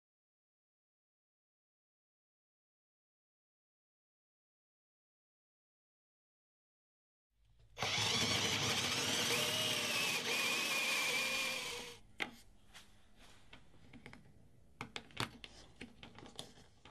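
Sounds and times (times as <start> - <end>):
power drill boring into wood: 7.8 - 12.0.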